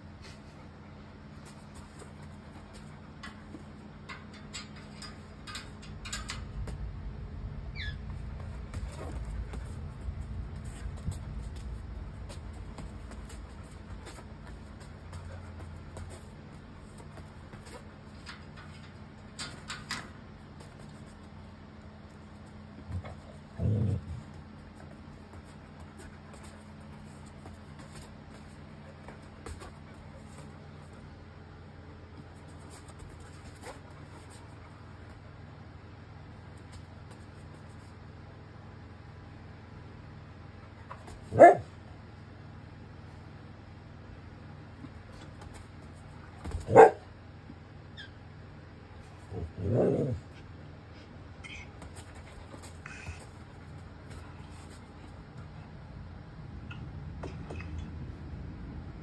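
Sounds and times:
steady low hum: 0.0s - 59.0s
short rising squeak: 7.7s - 8.3s.

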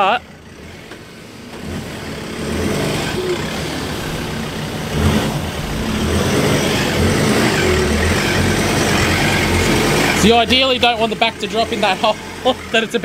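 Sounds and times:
truck engine revving: 0.0s - 13.0s.

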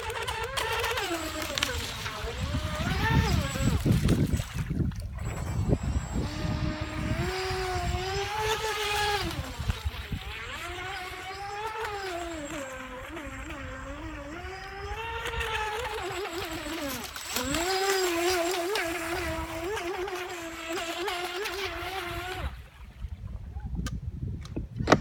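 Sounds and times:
electric motor whining: 0.0s - 22.7s.

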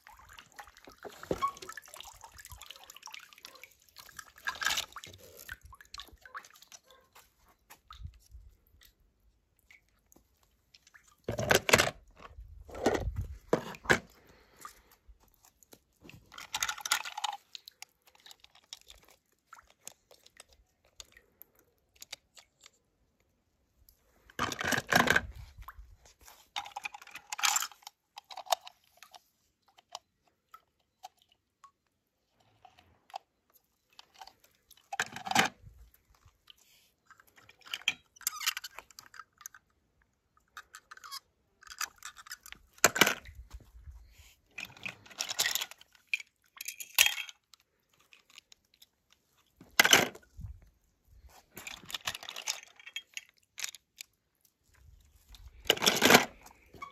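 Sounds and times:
toy cars clattering and clinking: 26.5s - 30.1s, 44.6s - 49.0s, 51.6s - 54.2s, 55.5s - 56.9s.

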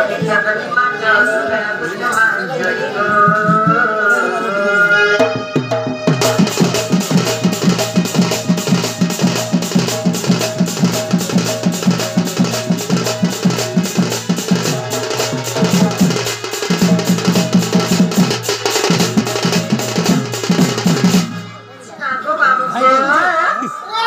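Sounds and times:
barrel drum beaten fast: 5.2s - 21.6s.

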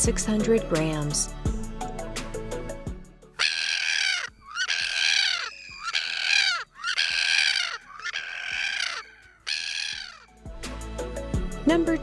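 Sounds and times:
gull calling: 3.4s - 10.3s.

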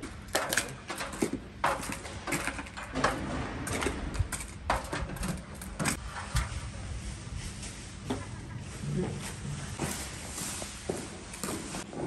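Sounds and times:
clicks knocks and clatter of work: 0.0s - 6.5s
man climbing aluminium stepladder: 0.0s - 6.6s.

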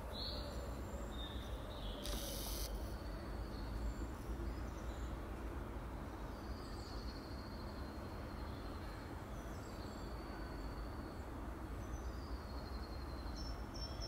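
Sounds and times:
brief hiss: 2.0s - 2.9s.

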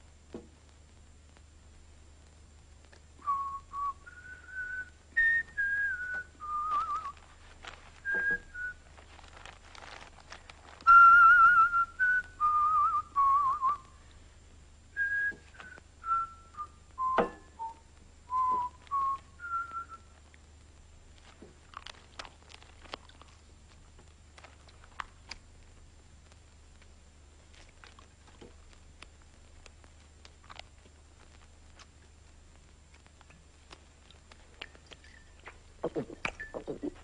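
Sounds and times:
person whistling a slow tune: 3.2s - 7.2s, 8.0s - 8.8s, 10.8s - 13.8s, 15.0s - 20.1s.

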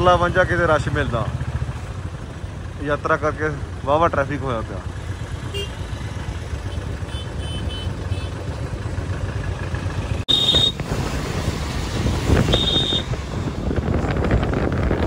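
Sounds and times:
motorcycle engine running: 0.0s - 15.0s
vehicle horn short beeps: 5.5s - 5.8s, 6.8s - 8.4s, 10.3s - 10.8s, 12.5s - 13.1s.

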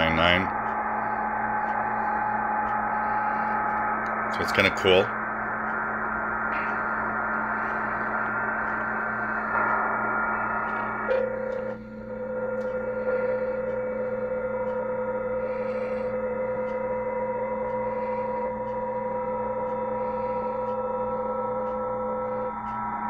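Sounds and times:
radio band hiss: 0.0s - 14.6s
steady digital signal tones: 0.0s - 23.0s.

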